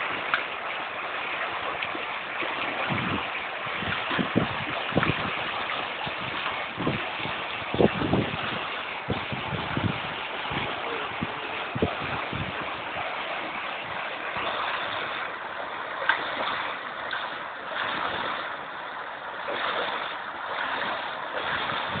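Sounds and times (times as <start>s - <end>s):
river water rushing: 0.0s - 22.0s
low thumps: 6.2s - 12.9s.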